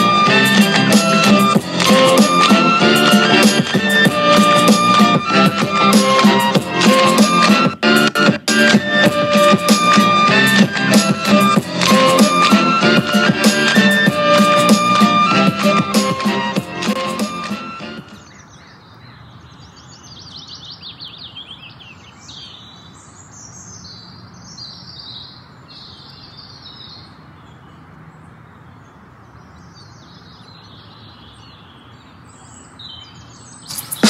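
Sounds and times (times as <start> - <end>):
small birds chirping: 17.6 - 34.0.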